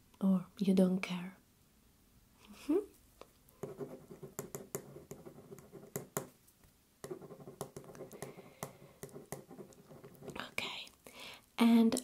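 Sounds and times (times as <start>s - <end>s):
pen scratching on paper: 3.6s - 6.3s, 7.0s - 10.6s.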